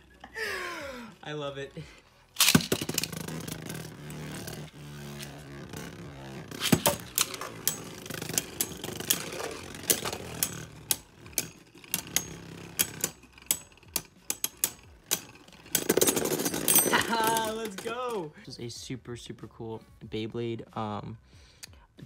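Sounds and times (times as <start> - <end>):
spinning tops clacking: 2.4 - 18.3.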